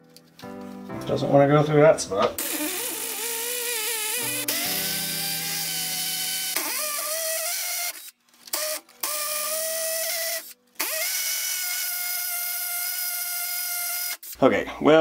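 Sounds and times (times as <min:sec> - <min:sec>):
hammer drill boring into concrete: 0:02.4 - 0:14.4.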